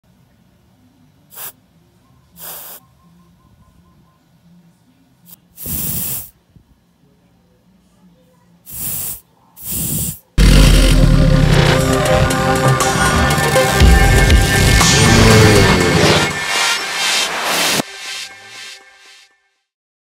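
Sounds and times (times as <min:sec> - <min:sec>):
air hissing from tyre valve: 0:02.4 - 0:02.8, 0:05.6 - 0:06.3, 0:08.7 - 0:10.2.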